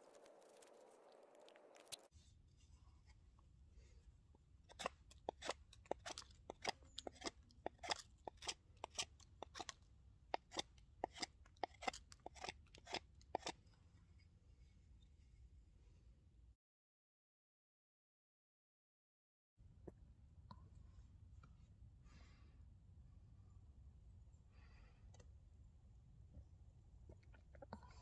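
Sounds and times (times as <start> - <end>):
knife shaving wood: 0.0 - 2.8, 4.6 - 13.7.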